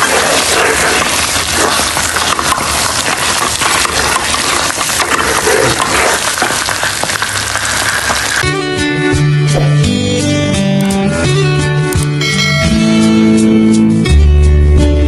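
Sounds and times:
spoon scraping a pan: 0:00.0 - 0:07.2
sticky rice bubbling in a pan: 0:00.0 - 0:08.4.

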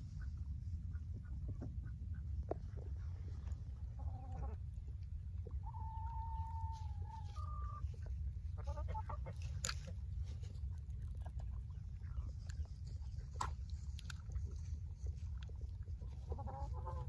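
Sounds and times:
chickens clucking: 0:03.8 - 0:17.0
chicken long rising call: 0:05.6 - 0:07.9.

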